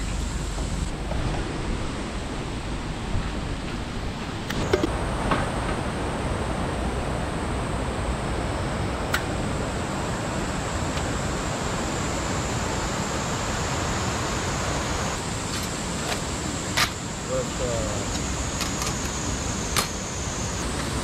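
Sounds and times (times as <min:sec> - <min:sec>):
rushing mountain stream: 0:00.2 - 0:17.3.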